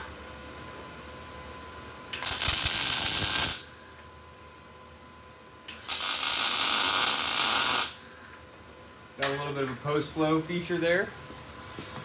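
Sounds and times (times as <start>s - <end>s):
welding arc crackling: 2.2s - 4.1s, 5.7s - 8.4s.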